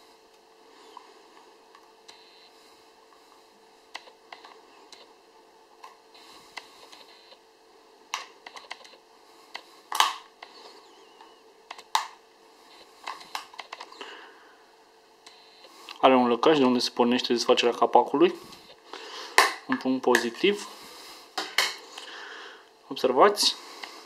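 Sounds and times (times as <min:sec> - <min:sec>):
plastic cover snapping: 0:09.9 - 0:10.2.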